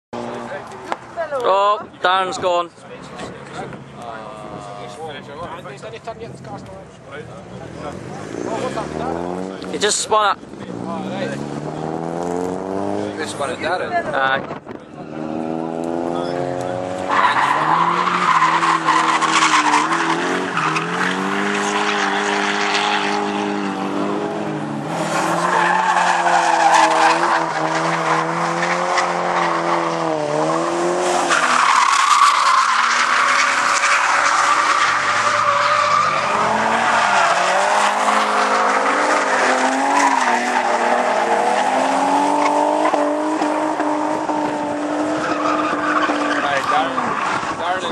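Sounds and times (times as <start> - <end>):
car engines revving: 0.2 - 47.9
tyre screech: 17.0 - 23.6, 24.9 - 47.7.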